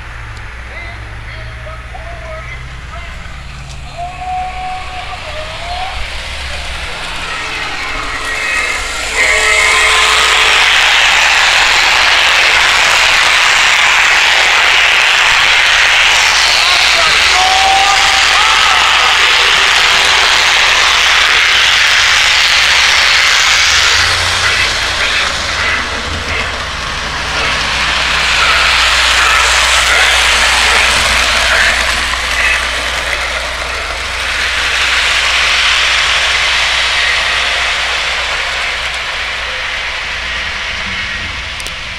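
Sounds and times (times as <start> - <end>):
low hum: 0.0 - 41.9
simulated steam chuffing: 0.0 - 41.9.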